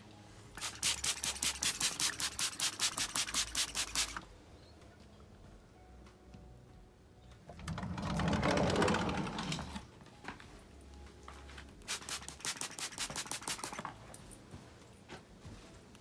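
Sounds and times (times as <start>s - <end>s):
glass sliding door rumbling: 7.5s - 9.8s.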